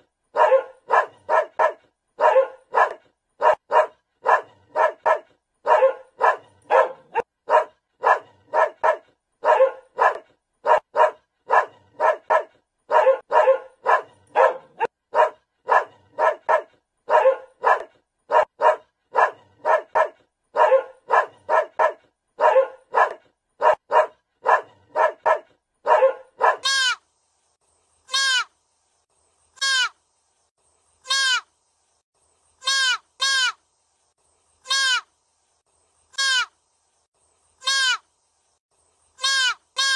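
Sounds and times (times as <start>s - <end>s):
dog barking: 0.3s - 26.7s.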